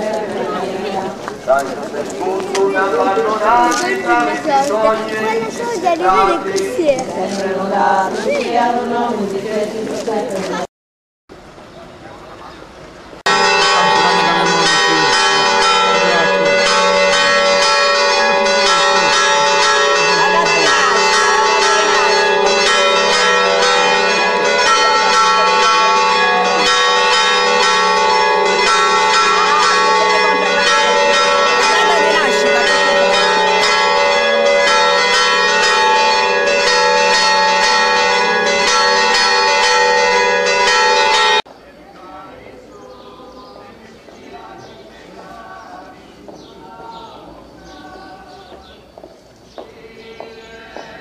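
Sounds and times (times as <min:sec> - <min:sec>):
church bells pealing: 0:00.0 - 0:07.0, 0:13.3 - 0:41.5.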